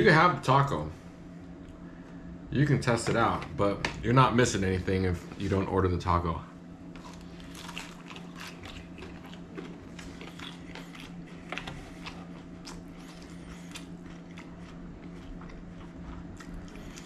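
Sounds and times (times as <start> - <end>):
steady low hum: 0.0 - 17.0
person chewing food: 6.9 - 17.0.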